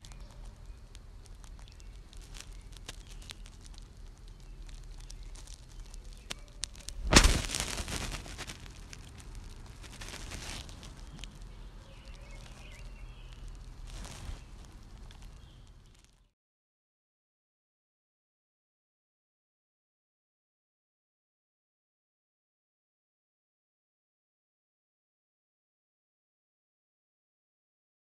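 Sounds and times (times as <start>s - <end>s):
hand rustling over blanket: 6.9s - 8.5s.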